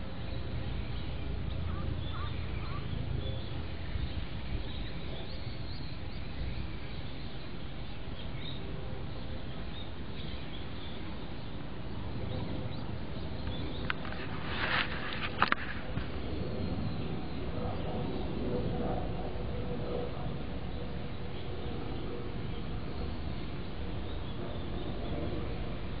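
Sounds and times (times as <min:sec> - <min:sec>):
steady low rumble: 0:00.0 - 0:26.0
faint bird chirps: 0:00.3 - 0:08.6.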